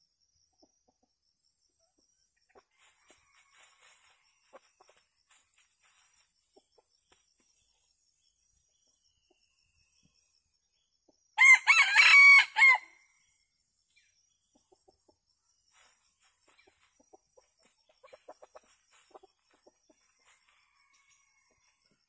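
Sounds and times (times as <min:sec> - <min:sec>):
rooster crowing: 0:11.4 - 0:13.0, 0:20.2 - 0:21.8
faint clucks: 0:16.5 - 0:20.1.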